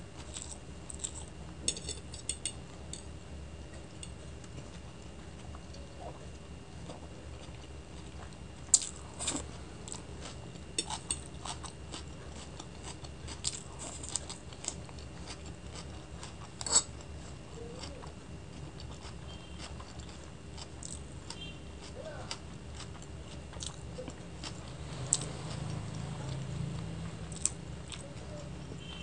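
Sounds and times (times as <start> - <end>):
chewing noodles: 3.7 - 29.0.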